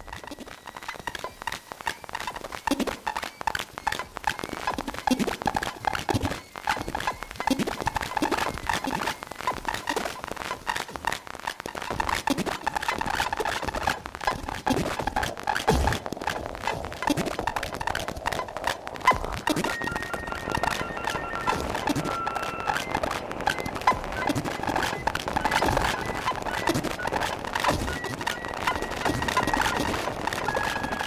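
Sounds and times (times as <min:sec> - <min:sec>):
experimental electronic music: 0:00.0 - 0:31.0.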